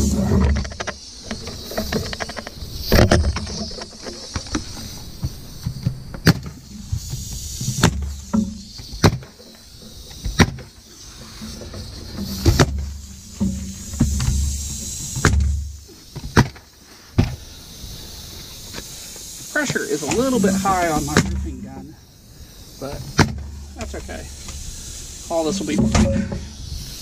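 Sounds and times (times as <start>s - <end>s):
pneumatic nailer firing: 5.6s - 9.5s, 10.2s - 10.8s, 12.1s - 17.5s, 23.1s - 23.5s.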